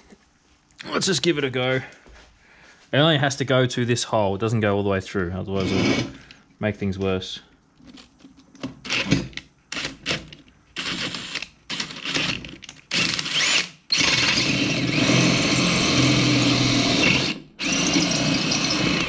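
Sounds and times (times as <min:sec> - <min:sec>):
cordless drill boring metal: 0:05.6 - 0:06.2, 0:08.8 - 0:19.0.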